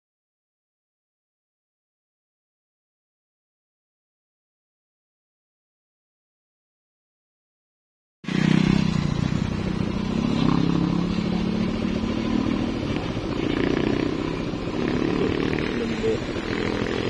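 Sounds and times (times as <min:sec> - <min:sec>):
motorcycle engine running: 0:08.3 - 0:17.0.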